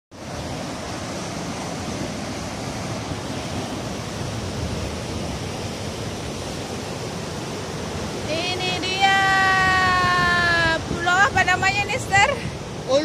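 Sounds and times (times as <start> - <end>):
heavy ocean surf breaking: 0.1 - 13.0.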